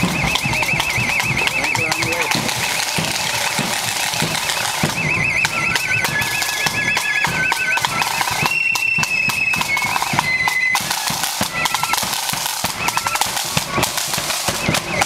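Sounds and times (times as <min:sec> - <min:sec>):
bass drum beat: 0:00.0 - 0:05.2
flutes trilling: 0:00.0 - 0:15.0
side drums beating: 0:00.0 - 0:15.0.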